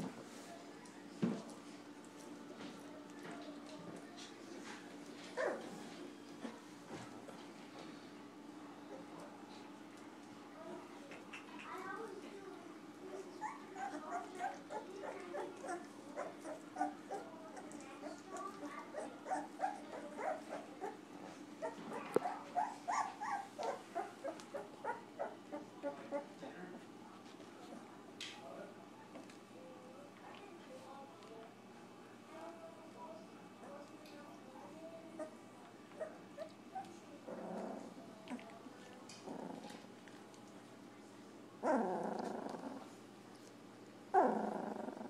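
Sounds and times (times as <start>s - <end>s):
puppies grunting and growling: 4.6s - 7.2s, 13.1s - 26.4s, 35.1s - 40.0s, 41.6s - 43.1s, 44.1s - 45.0s
puppy crying: 13.1s - 17.3s, 18.0s - 21.0s, 21.6s - 26.3s.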